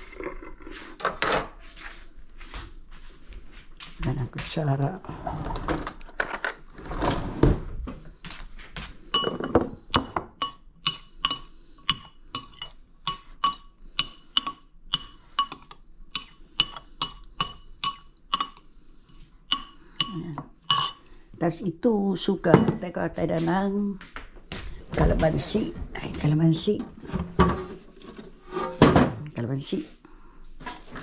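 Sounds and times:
spoon clinking against bowl rim: 10.4 - 18.6, 19.5 - 21.1
metal spoon scraping a bowl: 10.4 - 21.1.

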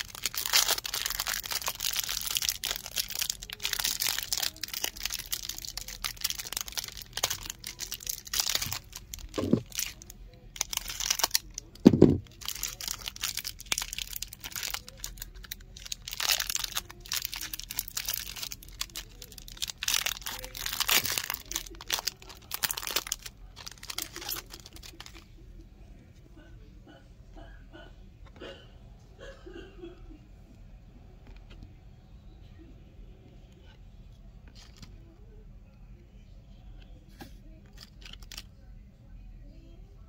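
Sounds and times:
plastic wrapper crinkling and tearing: 0.0 - 25.3, 34.4 - 34.9, 37.6 - 38.5.

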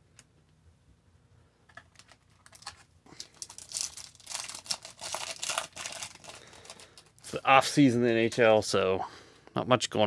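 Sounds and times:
foil card pack crinkling: 1.8 - 7.4.

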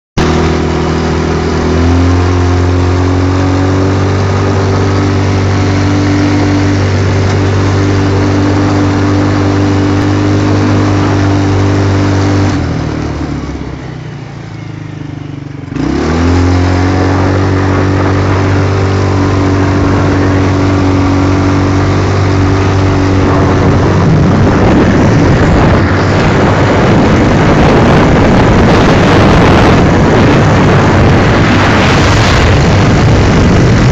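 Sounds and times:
quad bike engine running: 0.2 - 33.9
wind on microphone: 16.0 - 33.9.

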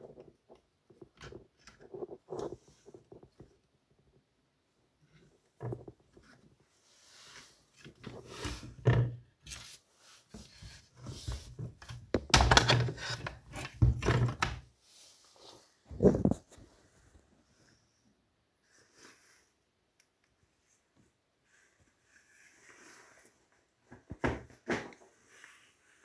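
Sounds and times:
plastic and metal parts knocking: 11.8 - 14.6.

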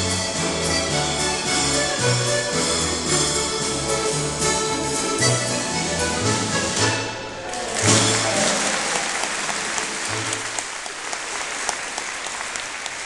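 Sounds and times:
folk dance music: 0.0 - 13.0
audience applauding: 7.4 - 13.0.

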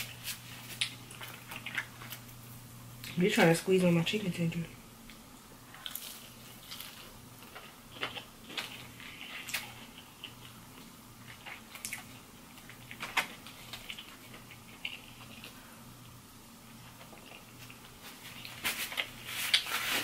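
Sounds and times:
chewing and mouth smacks: 0.6 - 2.4, 5.8 - 15.6, 16.8 - 19.7.

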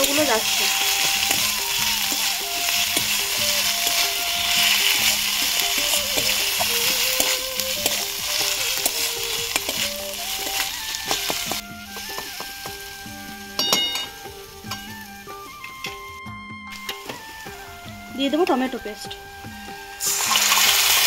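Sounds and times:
metal spatula scraping pan: 0.0 - 12.8
faint background music: 0.0 - 21.0
vegetables sizzling in oil: 0.0 - 21.0.

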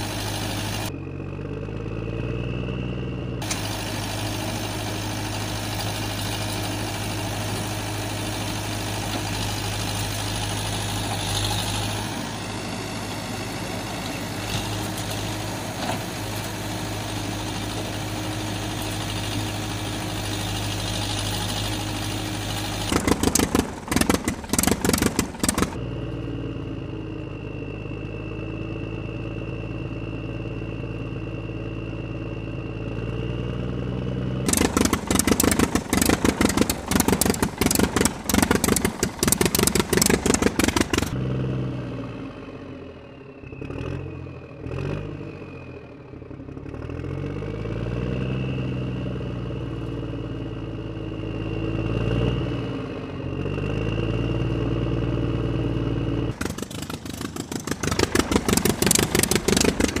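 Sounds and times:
engine revving: 0.0 - 26.4, 33.0 - 42.6, 43.5 - 60.0
loud rapid clattering: 22.8 - 25.8, 34.5 - 41.2, 56.4 - 60.0.

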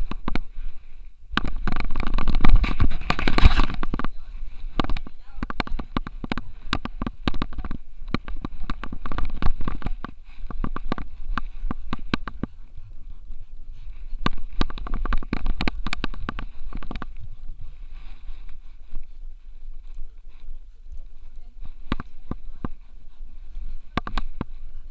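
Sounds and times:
clicks and thumps: 0.0 - 0.6, 1.3 - 12.8, 14.0 - 19.0, 21.6 - 22.9, 23.5 - 24.8.

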